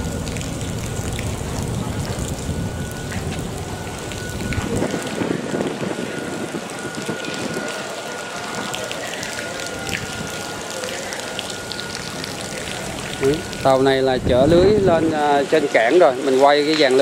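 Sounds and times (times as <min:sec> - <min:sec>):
wind rumble on microphone: 0:00.0 - 0:07.7, 0:14.1 - 0:15.2
rain pattering: 0:00.0 - 0:17.0.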